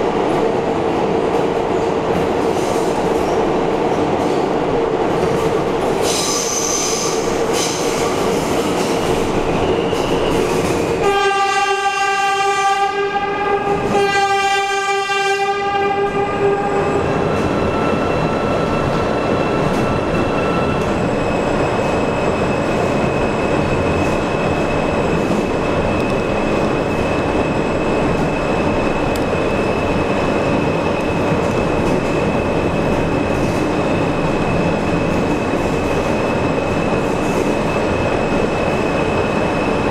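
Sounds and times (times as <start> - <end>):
train rumbling in tunnel: 0.0 - 39.9
subway train horn blasts: 9.7 - 17.3.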